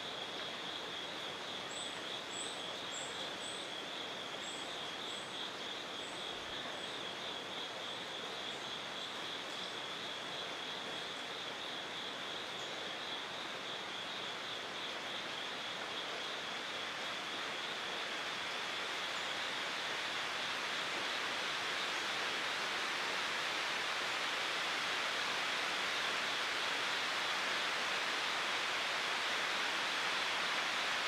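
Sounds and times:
insect chorus trilling: 0.0 - 31.0
even hiss: 9.8 - 31.0.

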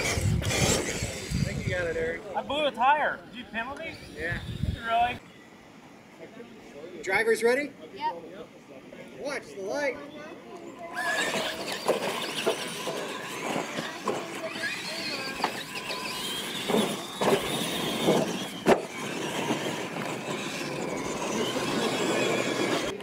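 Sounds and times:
electric toy truck motors whining: 0.0 - 2.1, 3.6 - 5.2, 10.8 - 23.0
toy trucks thudding on landing: 11.1 - 22.9.

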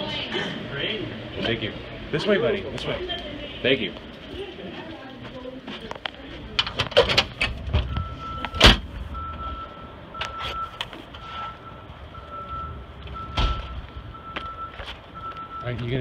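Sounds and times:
reversing alarm beeping: 7.8 - 16.0.

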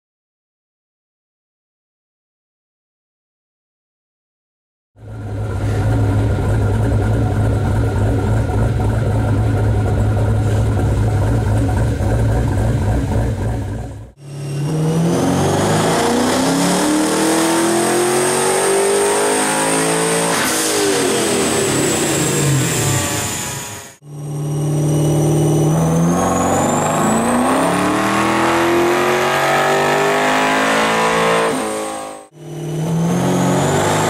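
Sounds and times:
car engine idling: 5.0 - 14.4
high whine: 5.0 - 18.5, 19.4 - 34.0
engine revving on dyno: 14.1 - 34.0.

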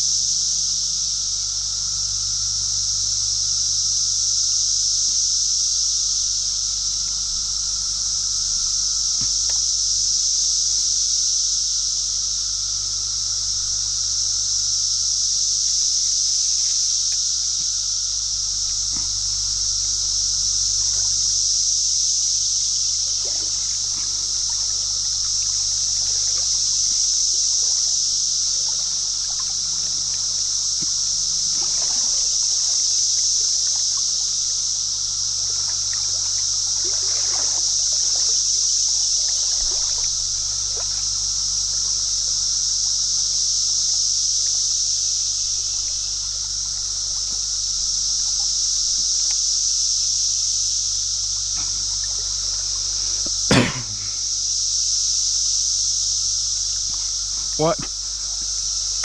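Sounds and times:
high-pitched hiss: 0.0 - 59.0
creek water trickling: 6.2 - 10.8, 11.7 - 54.5, 55.7 - 59.0
faint light splashes: 17.1 - 21.5, 22.8 - 32.8, 33.7 - 38.5, 39.2 - 42.8, 51.1 - 54.2.

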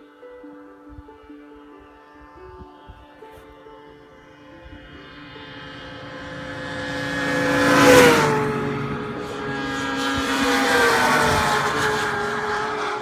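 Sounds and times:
snowmobile engines passing: 4.3 - 13.0.

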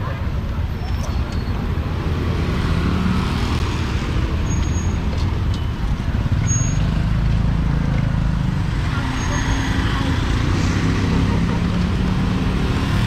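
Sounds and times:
street traffic rumble: 0.0 - 13.0
brief high squeaks: 0.8 - 1.6, 4.4 - 5.1, 6.4 - 6.9.

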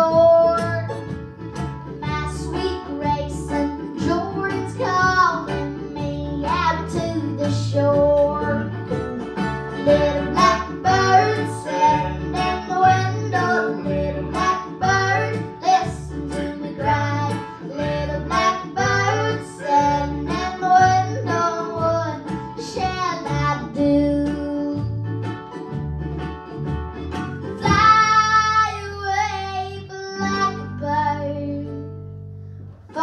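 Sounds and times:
acoustic guitar: 0.0 - 33.0
mandolin: 0.0 - 33.0
upright bass plucking: 0.0 - 33.0
drum strokes: 25.6 - 28.8.

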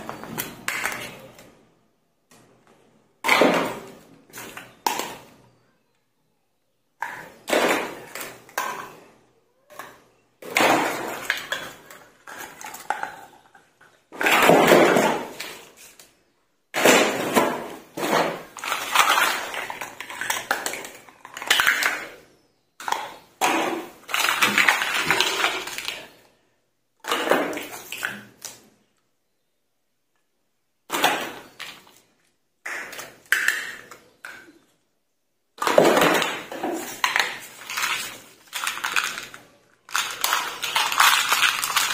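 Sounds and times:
plastic toy dishes clattering: 0.0 - 1.6, 2.3 - 5.4, 7.0 - 15.8, 16.7 - 26.2, 30.9 - 34.7, 35.6 - 41.9.

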